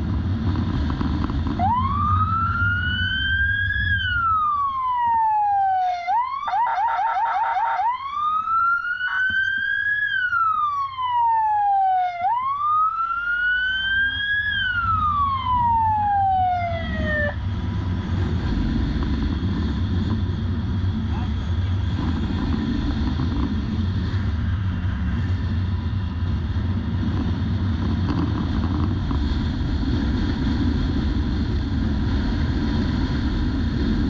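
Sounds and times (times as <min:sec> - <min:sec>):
wind noise: 0:00.0 - 0:05.1, 0:14.0 - 0:34.0
motorcycle engine rumble: 0:00.0 - 0:06.0, 0:08.3 - 0:34.0
electronic siren wailing: 0:01.6 - 0:17.4.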